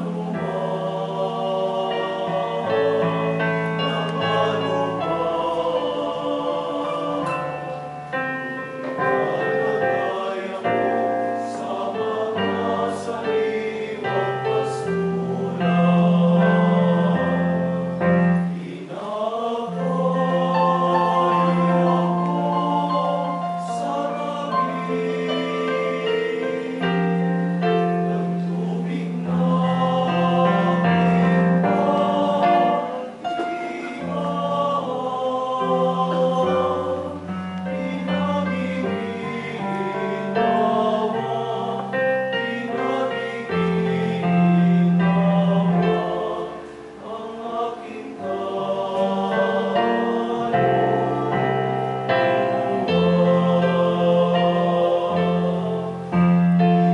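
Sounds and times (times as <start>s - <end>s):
choir singing a hymn: 0.0s - 56.9s
instrumental accompaniment: 0.0s - 56.9s.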